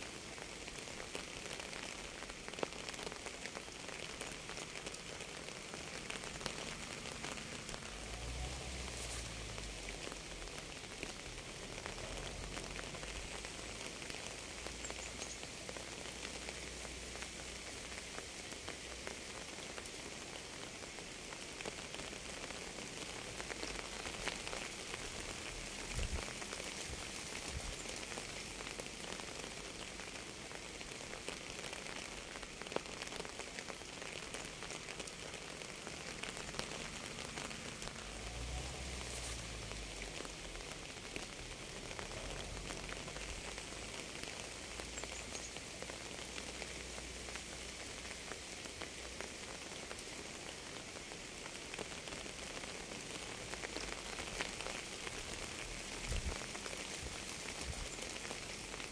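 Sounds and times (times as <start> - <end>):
rain pattering on a surface: 0.0 - 58.9.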